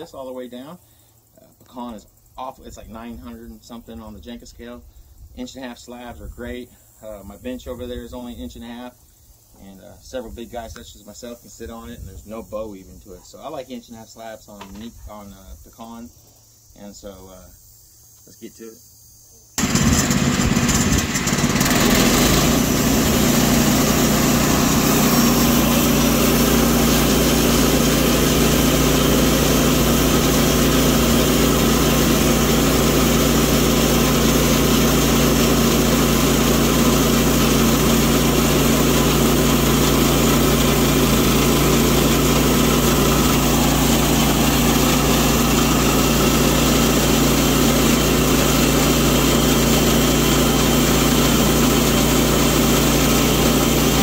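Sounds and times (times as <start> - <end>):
bandsaw sawmill cutting wood: 19.6 - 54.0.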